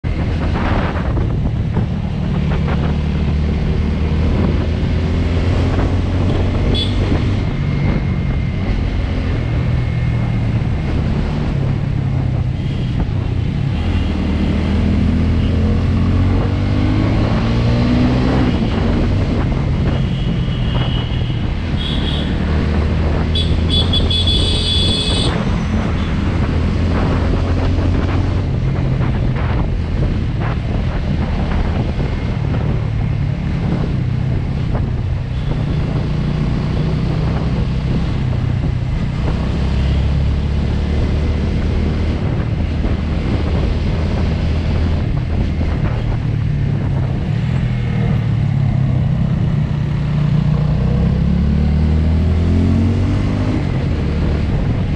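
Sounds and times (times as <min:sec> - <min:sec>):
motorcycle engine revving: 0:00.0 - 0:54.9
wind on microphone: 0:00.0 - 0:54.9.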